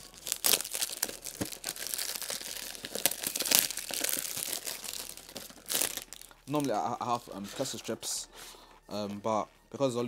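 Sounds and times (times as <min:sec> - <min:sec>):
plastic shrink-wrap crinkling: 0:00.0 - 0:07.9.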